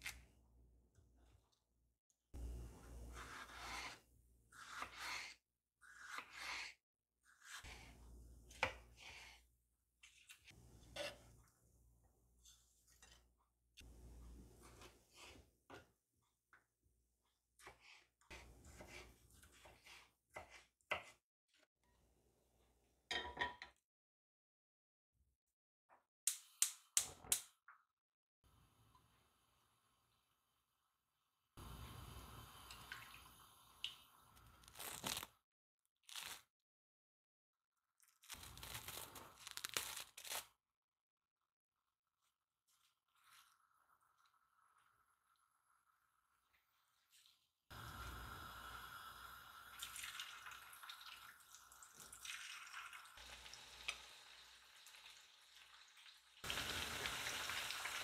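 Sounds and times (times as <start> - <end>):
knife slicing on cutting board: 3.1 - 4.0, 4.6 - 9.4
wok set down on grate: 23.1 - 23.7
gas burner hissing: 31.6 - 33.6, 47.8 - 49.6.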